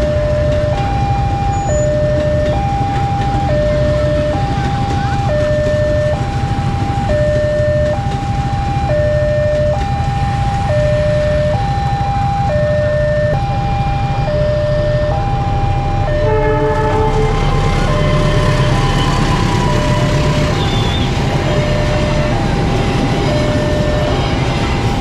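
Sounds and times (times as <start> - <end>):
train rumbling: 0.0 - 25.0
two-tone crossing warning alarm: 0.0 - 25.0
train horn: 15.9 - 25.0.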